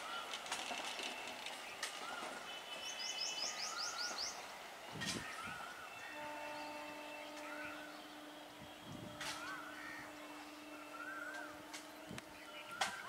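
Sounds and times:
birds chirping: 0.0 - 13.0
distant horn-like tone: 6.0 - 12.9.

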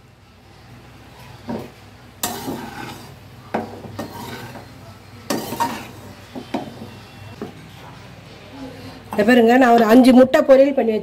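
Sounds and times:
metal spoon scraping a wok: 1.1 - 6.8.

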